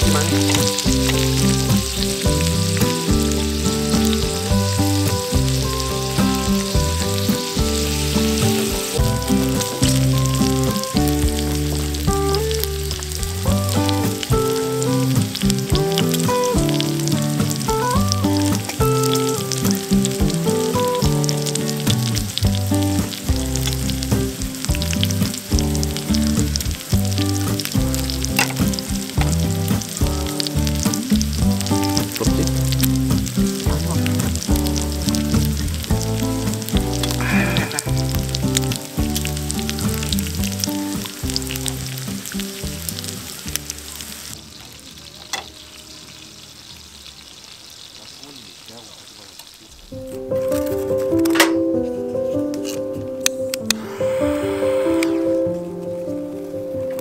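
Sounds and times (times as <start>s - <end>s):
background music with bass line: 0.0s - 44.4s
food frying and sizzling: 0.0s - 57.0s.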